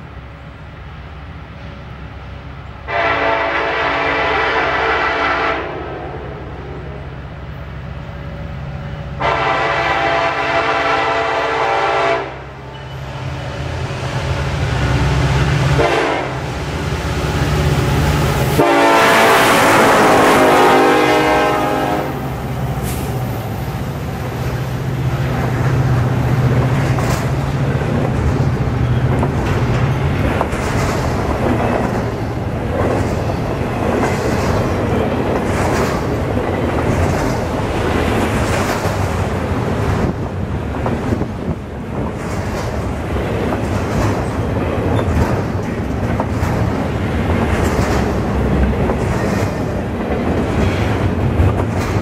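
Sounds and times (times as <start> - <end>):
locomotive air horn blasts: 2.9 - 6.2, 9.2 - 12.5, 15.7 - 16.5, 18.6 - 23.1
freight cars rumbling by: 12.7 - 52.0.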